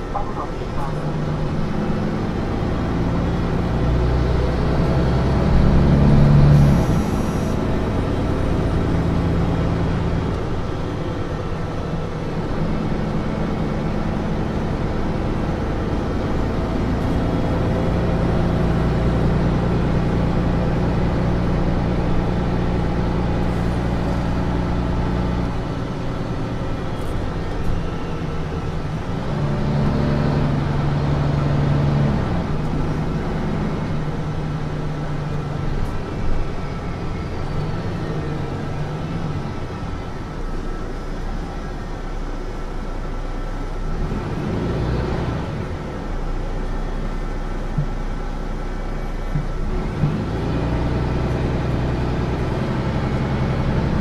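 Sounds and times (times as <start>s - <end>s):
bus engine pulling under load: 0.0s - 54.0s.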